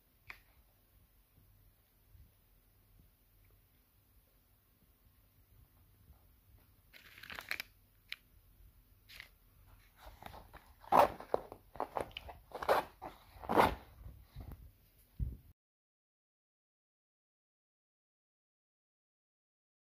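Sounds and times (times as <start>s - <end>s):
crunches and sharp cracks: 6.9s - 8.3s.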